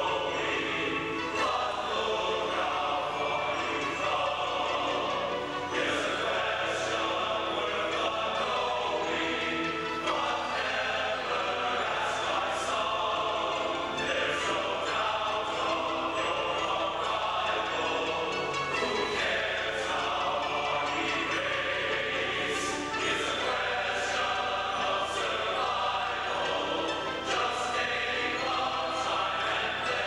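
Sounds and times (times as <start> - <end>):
men's chorus singing: 0.0 - 30.0.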